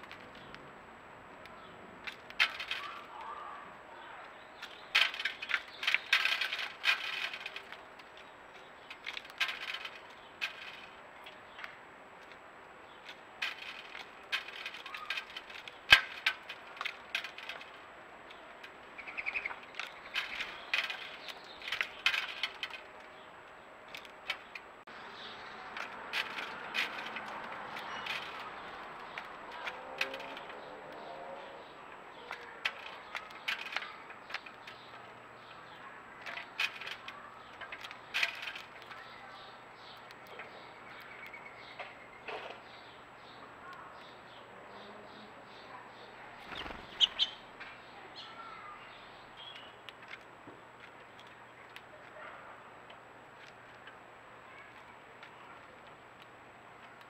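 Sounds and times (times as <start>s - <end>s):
birds chirping: 0.0s - 57.0s
beaks tapping on feeder tray: 46.4s - 47.4s.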